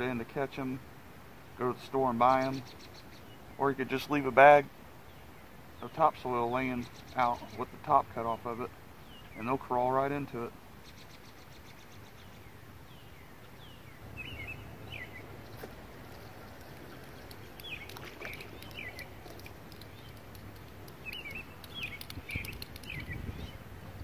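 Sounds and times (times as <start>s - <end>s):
songbird chirping: 1.6s - 24.0s
faint clicks: 15.6s - 23.2s.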